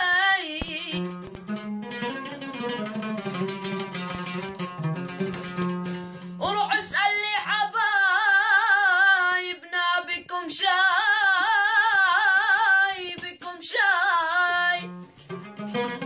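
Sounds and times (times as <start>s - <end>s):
boys singing: 0.0s - 1.0s, 6.4s - 14.9s.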